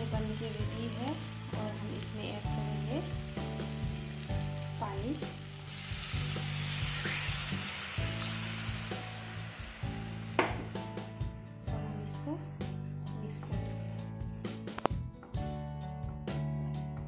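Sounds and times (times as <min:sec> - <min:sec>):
food sizzling in hot oil: 0:00.0 - 0:11.4
water poured into hot pan: 0:00.9 - 0:09.9
sharp knock: 0:10.4 - 0:10.7.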